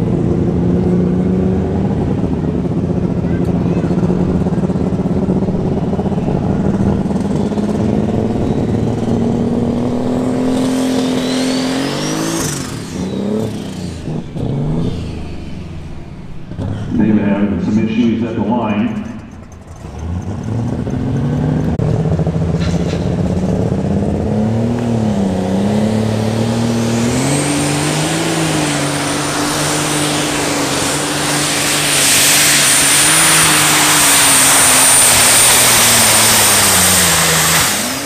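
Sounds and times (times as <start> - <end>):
tractor diesel engine running hard: 0.0 - 38.0
high-pitched whine: 3.6 - 20.2.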